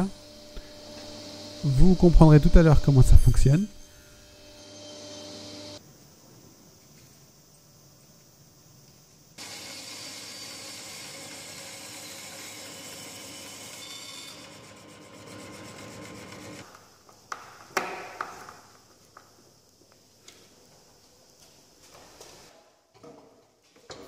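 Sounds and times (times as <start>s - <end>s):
bandsaw cutting wood: 0.0s - 5.8s, 9.4s - 16.6s.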